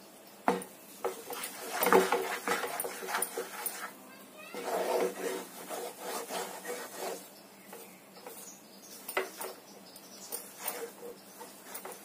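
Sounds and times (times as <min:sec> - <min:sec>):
wooden spatula scraping a pan: 0:01.0 - 0:08.6, 0:10.4 - 0:12.0.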